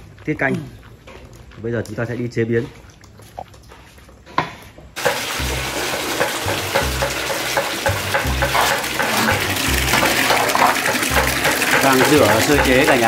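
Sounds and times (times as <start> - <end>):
tap water pouring into basin: 5.0 - 13.0.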